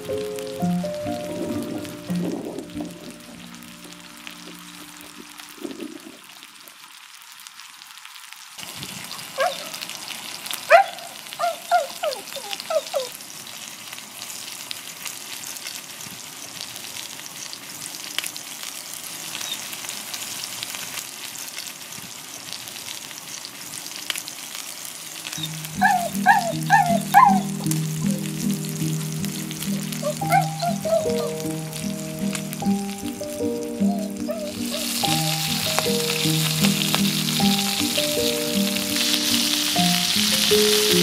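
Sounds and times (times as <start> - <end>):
steak sizzling on a griddle: 0.0 - 41.0
short high calls: 25.4 - 28.6, 29.2 - 41.0.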